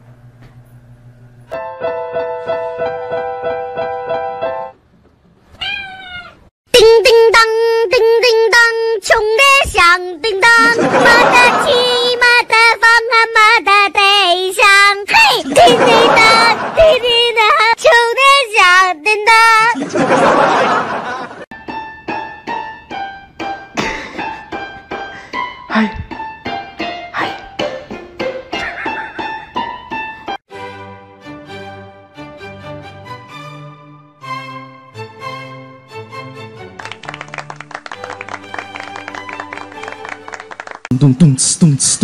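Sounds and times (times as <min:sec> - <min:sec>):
cat meowing: 0:05.5 - 0:06.5.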